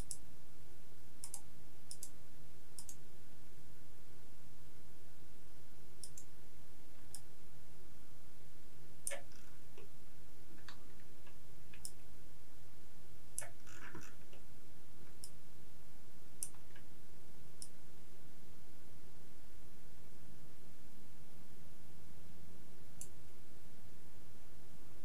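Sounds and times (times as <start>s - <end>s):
computer mouse clicking: 0.0s - 0.2s, 1.2s - 2.2s, 2.8s - 3.0s, 6.0s - 6.3s, 9.0s - 9.9s, 10.6s - 12.0s, 13.4s - 14.4s
steady low hum: 0.0s - 25.0s.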